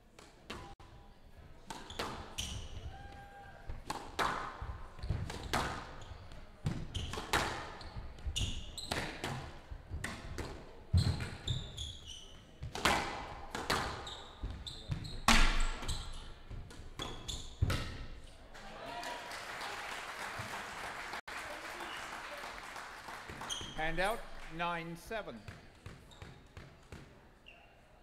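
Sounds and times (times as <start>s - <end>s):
shoes squeaking on court floor: 1.8s - 2.9s, 5.0s - 9.4s, 10.3s - 12.9s, 13.6s - 18.4s, 23.3s - 24.1s, 25.3s - 27.9s.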